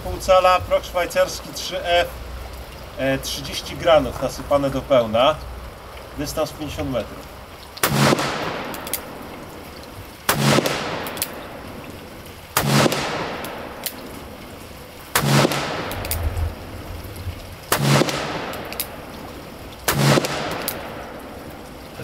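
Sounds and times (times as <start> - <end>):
revolver shots echoing: 7.8 - 9.2, 10.3 - 11.9, 12.6 - 14.2, 15.2 - 16.8, 17.7 - 21.6.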